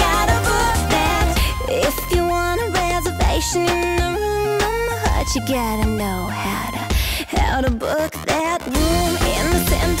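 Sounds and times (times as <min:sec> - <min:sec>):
gliding melodic lead line: 0:00.0 - 0:07.0
bass line: 0:00.0 - 0:10.0.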